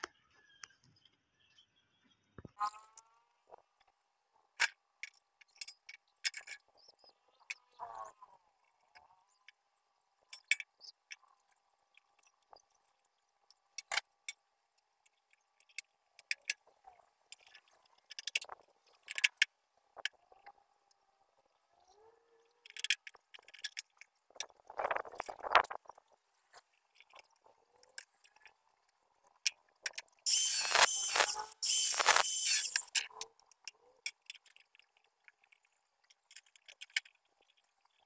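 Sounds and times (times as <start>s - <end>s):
angle grinder on metal: 30.3s - 32.9s.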